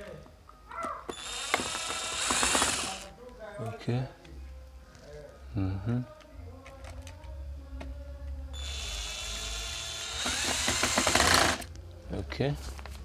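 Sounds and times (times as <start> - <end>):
loud whir: 1.1 - 3.0
power drill driving a screw: 1.1 - 3.1, 8.6 - 11.7.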